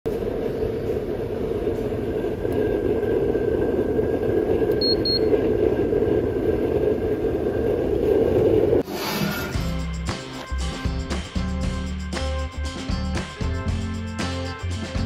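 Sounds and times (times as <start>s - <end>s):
stove blower roaring with flame: 0.0s - 9.0s
thermometer beeps: 4.7s - 5.5s.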